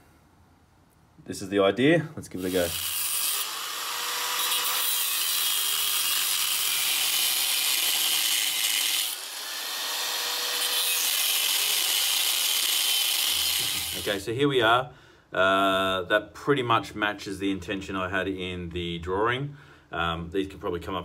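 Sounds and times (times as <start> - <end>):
angle grinder cutting steel: 2.4 - 14.2.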